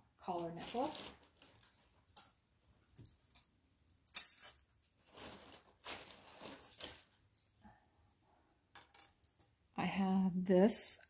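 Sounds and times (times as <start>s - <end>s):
jewelry rustling and jingling: 0.4s - 7.6s
metallic clink of jewelry: 3.1s - 4.9s.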